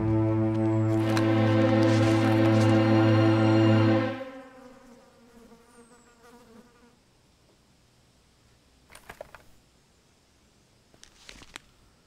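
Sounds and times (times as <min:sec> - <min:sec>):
flying insect buzzing: 0:00.9 - 0:07.0
faint clicks and rustles: 0:10.9 - 0:11.8.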